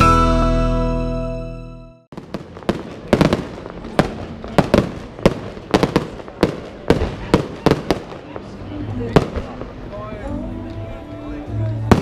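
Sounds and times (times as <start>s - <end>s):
fireworks bangs and crackles: 2.1s - 10.2s, 11.6s - 12.0s.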